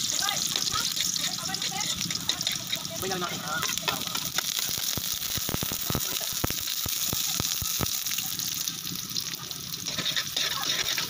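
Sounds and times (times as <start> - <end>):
garlic and onion sizzling in oil: 0.0 - 11.0.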